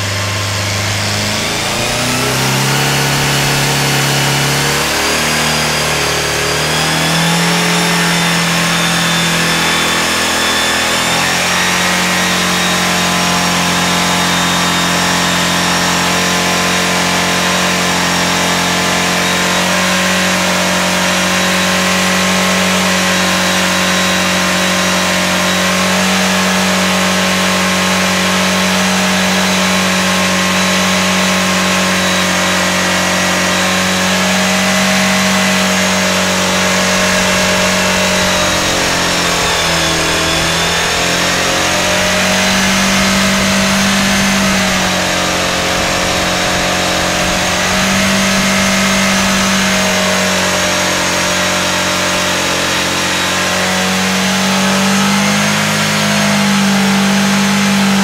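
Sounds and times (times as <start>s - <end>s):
aircraft engine running loud: 0.0s - 58.0s.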